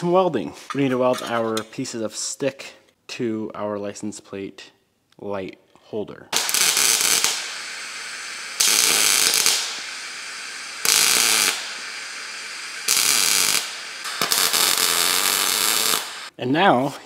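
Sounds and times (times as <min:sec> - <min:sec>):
welder arc crackling: 0:06.4 - 0:16.3.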